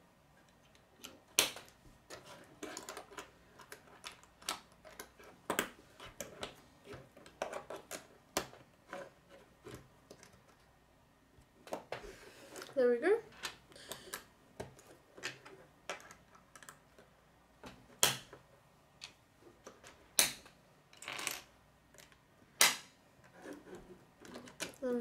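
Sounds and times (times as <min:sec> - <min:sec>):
plastic pieces clicking together: 0:00.5 - 0:06.6, 0:24.2 - 0:24.9.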